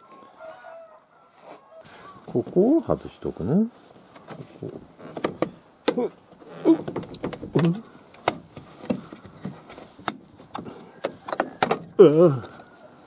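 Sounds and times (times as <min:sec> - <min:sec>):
plastic panel creaking: 0:04.1 - 0:12.7.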